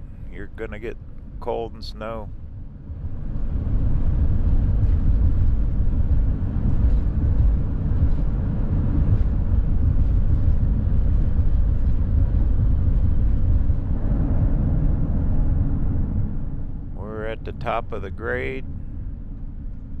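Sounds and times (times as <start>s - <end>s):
vehicle engine working uphill: 0.0s - 20.0s
wind noise: 0.0s - 20.0s.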